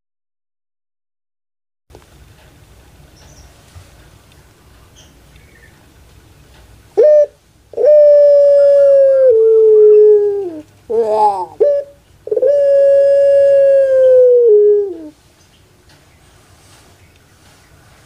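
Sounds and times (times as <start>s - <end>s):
dove cooing: 7.0s - 15.2s.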